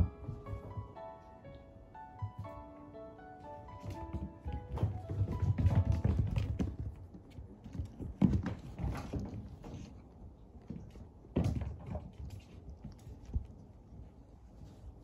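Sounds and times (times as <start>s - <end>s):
kittens' paws pattering on wooden floor: 3.4s - 15.0s.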